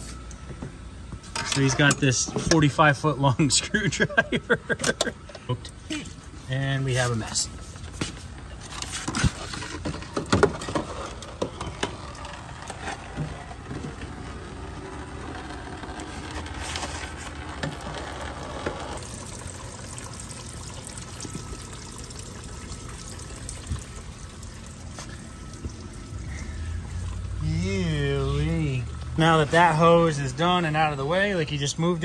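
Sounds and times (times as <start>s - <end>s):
coolant pouring into plastic bin: 8.8s - 31.0s.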